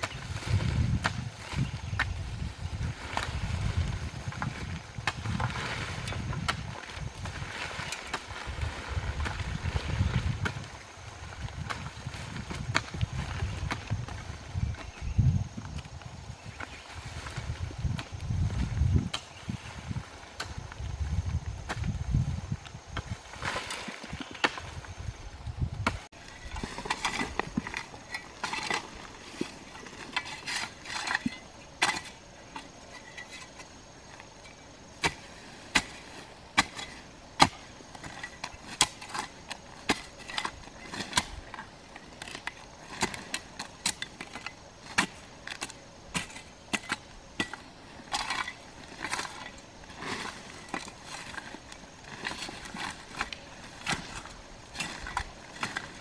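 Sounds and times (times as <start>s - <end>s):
hoe chopping into soil: 25.8s - 33.6s, 35.0s - 56.0s.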